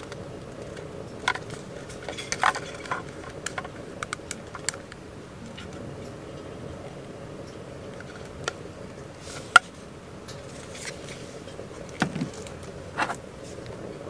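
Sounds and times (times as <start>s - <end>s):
steady low hum: 0.0s - 14.0s
plastic clicks and knocks: 12.0s - 13.2s.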